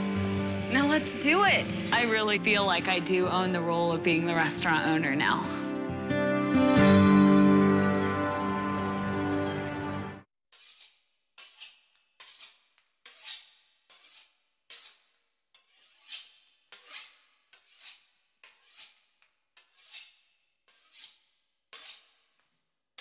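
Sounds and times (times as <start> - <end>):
knife sawing through pastry crust: 10.5 - 22.6.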